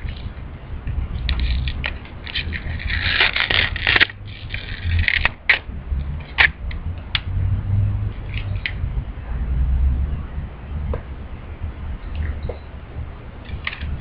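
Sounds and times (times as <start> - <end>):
instant film ripping apart: 1.2 - 5.7
sharp paper clicks: 1.2 - 5.7.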